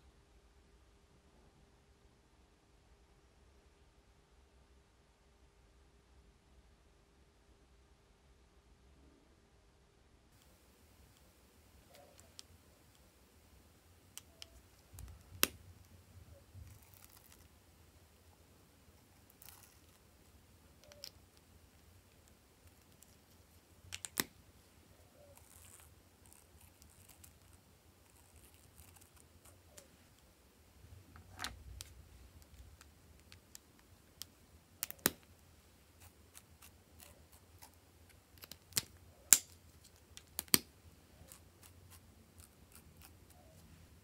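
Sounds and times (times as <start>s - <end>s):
marker caps clicking: 11.8s - 13.1s, 14.1s - 16.0s, 19.0s - 24.3s, 31.2s - 35.3s, 36.0s - 43.5s.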